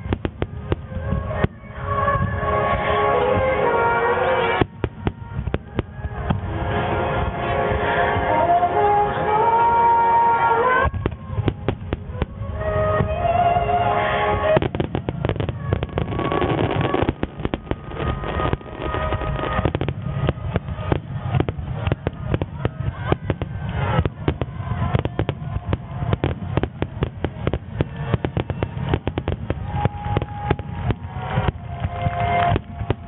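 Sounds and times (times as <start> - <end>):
fireworks bursting: 0.0 - 33.0.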